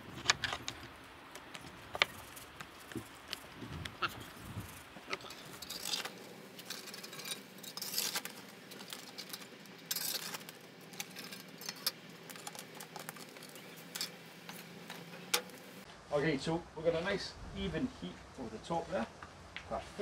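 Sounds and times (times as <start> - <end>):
wood fire crackling: 0.0 - 16.0
embers and ash raked on tiles: 1.6 - 15.9.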